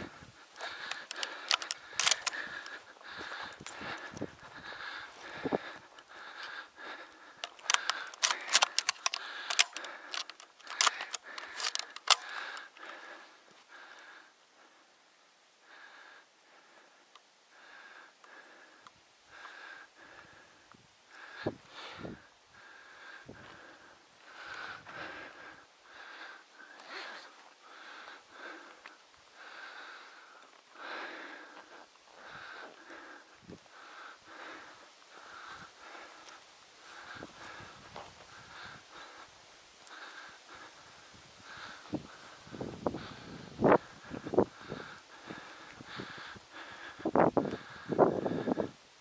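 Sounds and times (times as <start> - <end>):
footsteps on rough dry ground: 0.0 - 12.6, 35.1 - 39.2
person breathing heavily: 0.0 - 49.0
gear clicking and rustling: 0.5 - 4.5, 5.3 - 13.1.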